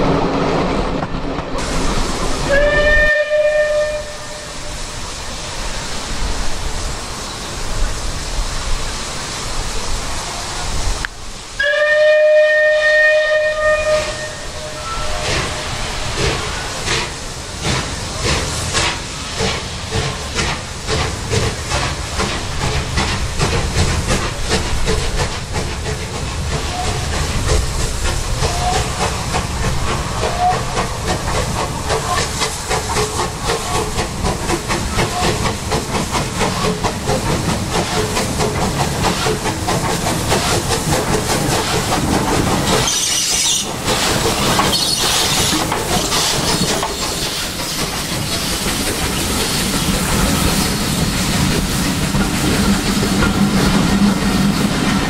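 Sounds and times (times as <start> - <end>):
steam hissing: 1.6 - 55.0
steam locomotive chuffing: 1.6 - 55.0
steam locomotive whistle: 2.4 - 4.8, 11.6 - 15.6, 30.2 - 30.7.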